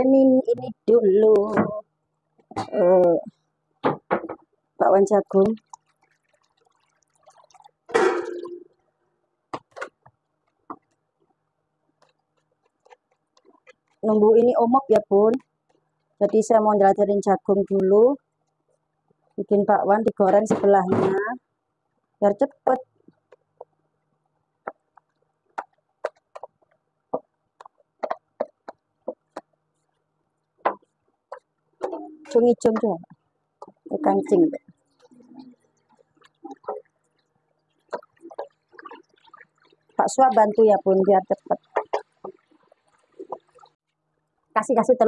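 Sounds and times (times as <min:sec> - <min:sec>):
dishes clattering: 0:07.9 - 0:08.6.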